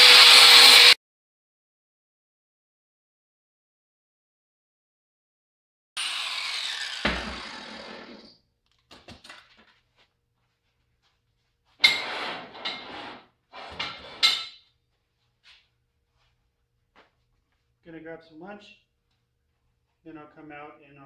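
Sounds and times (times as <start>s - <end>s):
angle grinder winding down: 0.0s - 1.0s, 6.0s - 8.4s.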